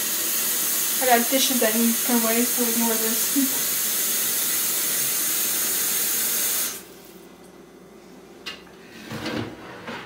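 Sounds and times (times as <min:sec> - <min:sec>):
faucet water running into pitcher: 0:00.0 - 0:06.9.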